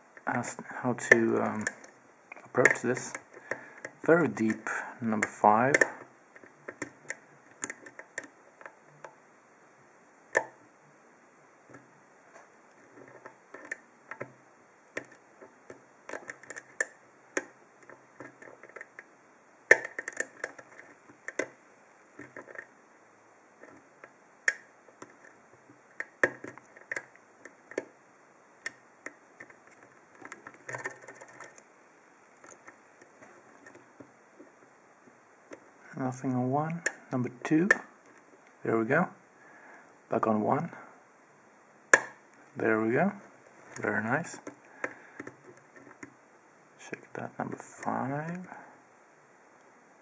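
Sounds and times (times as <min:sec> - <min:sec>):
lock picking metallic clicks: 0:19.7 - 0:21.5, 0:24.4 - 0:25.3.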